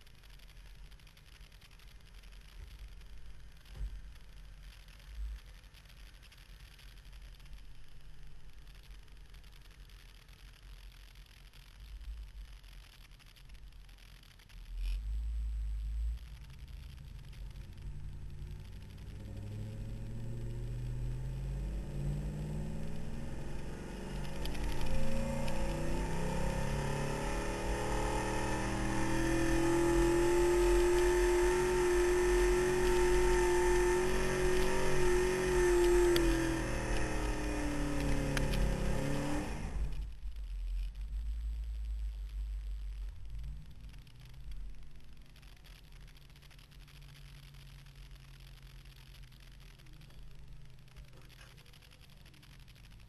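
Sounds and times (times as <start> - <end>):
pickup engine under full load: 15.0 - 45.8.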